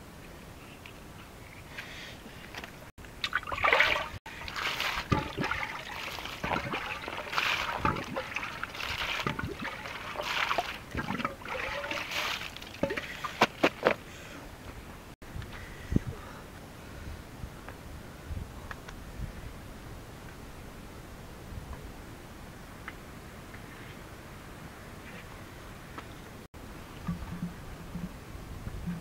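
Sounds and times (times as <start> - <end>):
small water splashes: 3.2 - 13.6
wet fish squelching and slapping: 3.2 - 13.6.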